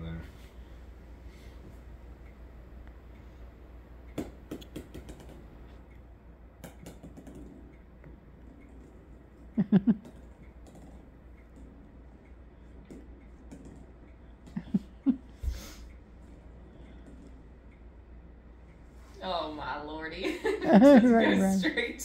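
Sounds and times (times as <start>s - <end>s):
plastic toy ball clicking on floor: 4.1s - 5.5s, 6.6s - 9.4s, 10.0s - 11.8s.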